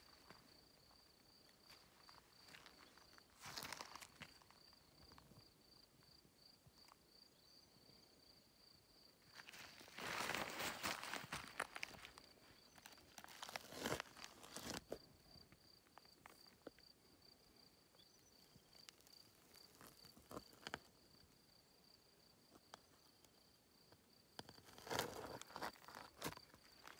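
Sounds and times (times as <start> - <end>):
insect trill: 0.0 - 26.9
footsteps on gravel: 1.6 - 4.4, 9.4 - 15.0.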